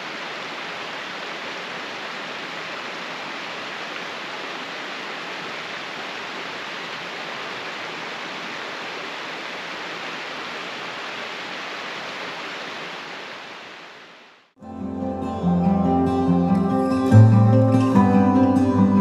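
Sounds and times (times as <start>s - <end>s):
stream splashing over rocks: 0.0s - 14.3s.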